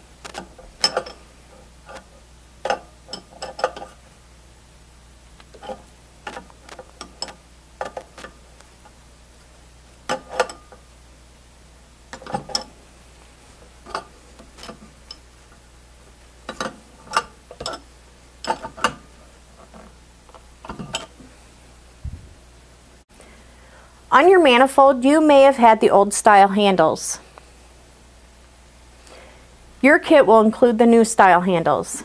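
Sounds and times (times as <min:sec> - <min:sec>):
wrench clinking on metal nuts: 0:00.4 - 0:01.2, 0:16.5 - 0:17.8.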